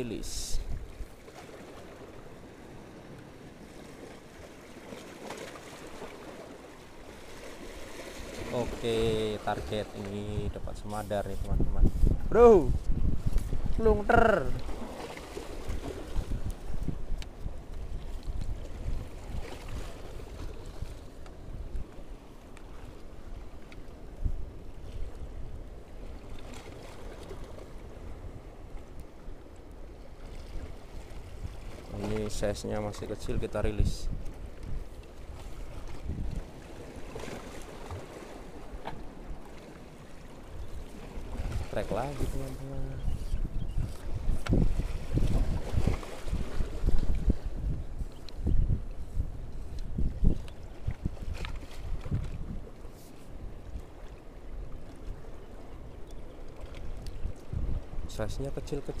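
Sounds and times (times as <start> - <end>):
wind on microphone: 0.0 - 1.2, 7.6 - 39.4, 40.1 - 59.0
seawater washing against rocks: 0.0 - 23.8, 30.4 - 43.1.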